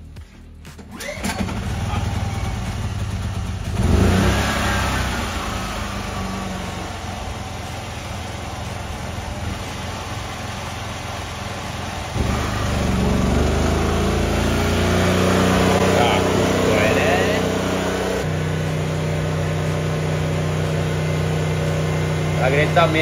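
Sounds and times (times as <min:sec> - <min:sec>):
small generator engine running: 0:00.8 - 0:23.0.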